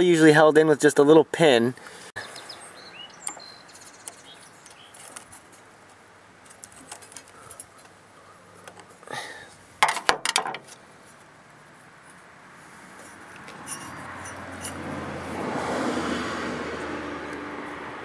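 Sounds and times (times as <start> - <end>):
birds chirping: 0.9 - 5.8.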